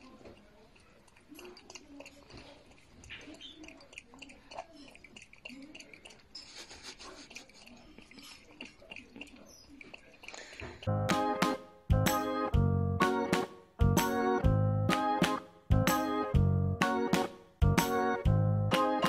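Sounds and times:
animal lapping water: 0.0s - 10.9s.

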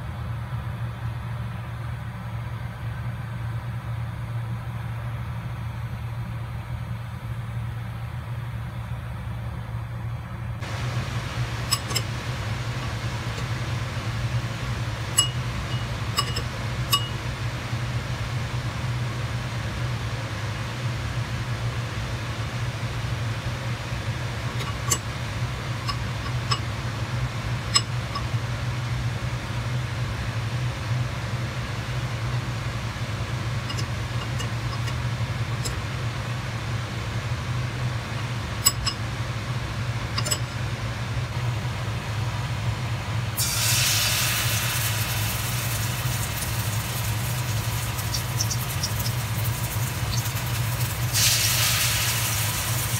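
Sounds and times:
low mechanical hum: 0.0s - 52.9s
spoon clinking against ceramic bowl: 15.2s - 17.2s.

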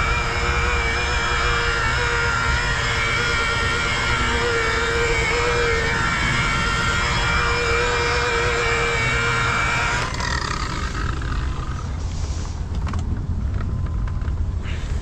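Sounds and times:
electric polisher whining: 0.0s - 12.0s
low rumble: 0.0s - 15.0s.

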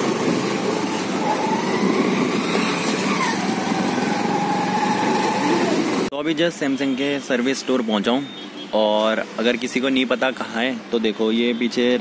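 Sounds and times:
road and wind noise: 0.0s - 12.0s.

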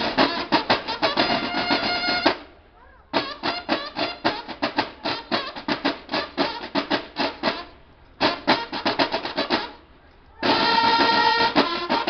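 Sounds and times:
field drums playing a march: 0.0s - 12.0s.

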